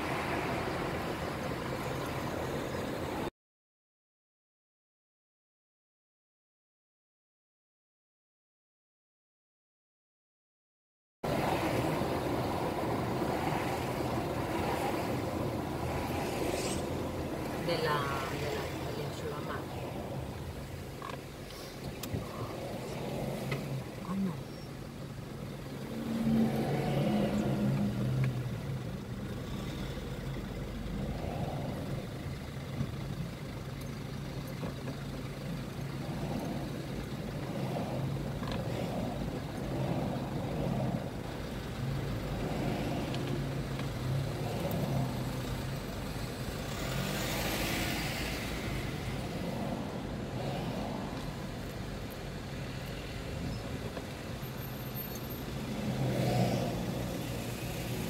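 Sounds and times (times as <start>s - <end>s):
vehicle passing close by: 0.0s - 3.3s, 11.3s - 20.5s, 25.7s - 32.4s, 35.9s - 51.7s, 55.5s - 58.0s
car engine idling: 16.8s - 26.3s, 27.0s - 55.8s.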